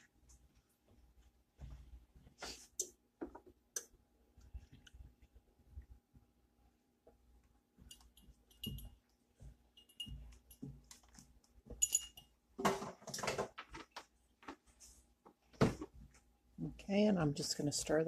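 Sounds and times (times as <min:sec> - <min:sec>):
measuring cup clinking on glass bowl: 0:11.8 - 0:12.3.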